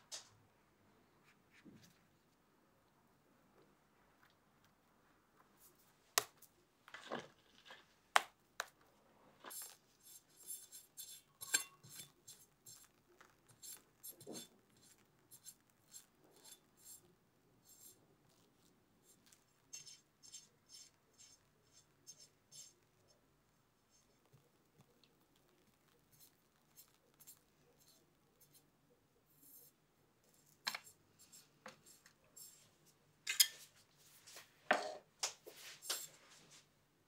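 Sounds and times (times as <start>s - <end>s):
spatula scraping cream: 9.3s - 23.2s.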